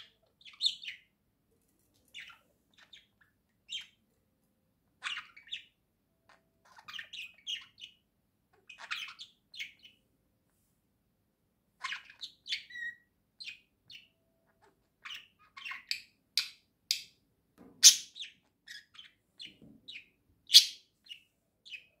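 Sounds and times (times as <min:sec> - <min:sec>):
budgerigars chirping: 0:00.0 - 0:01.1, 0:02.1 - 0:04.0, 0:05.0 - 0:10.0, 0:11.8 - 0:17.2, 0:17.8 - 0:22.0.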